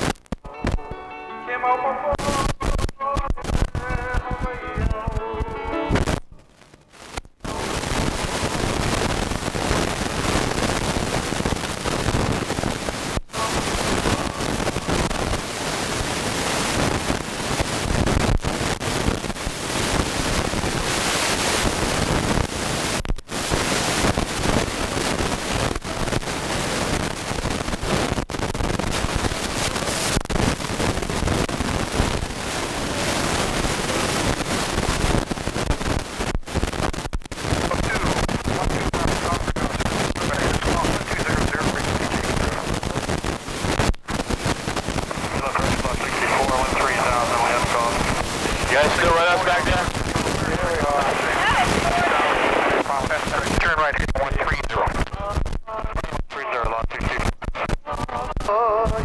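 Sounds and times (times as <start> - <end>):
helicopter cabin noise: 45.1 - 53.1.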